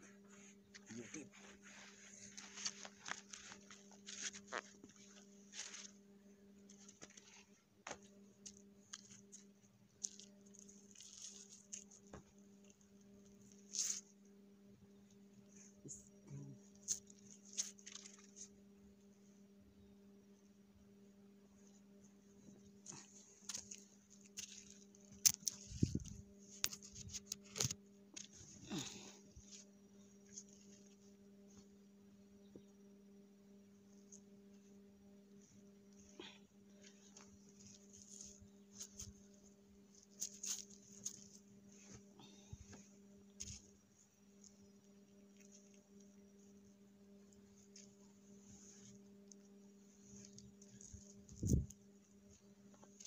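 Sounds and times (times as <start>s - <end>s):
faint steady hum: 0.0s - 53.0s
cloth rustling: 0.1s - 6.1s.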